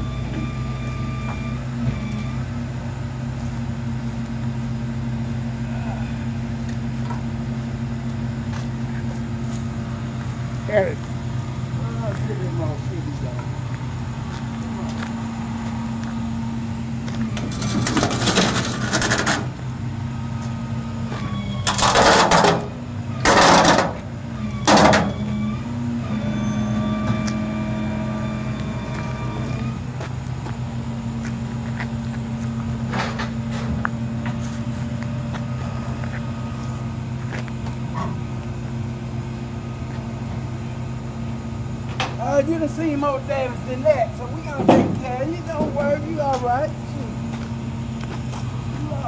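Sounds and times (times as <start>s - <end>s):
engine running steadily: 0.0s - 49.0s.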